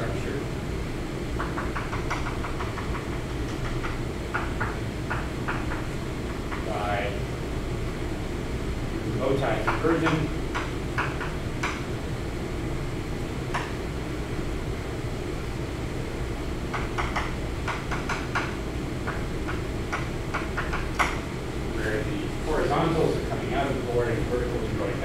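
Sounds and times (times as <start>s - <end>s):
steady room hum: 0.0s - 25.0s
chalk tapping on blackboard: 1.4s - 6.7s, 9.6s - 11.8s, 16.7s - 21.2s.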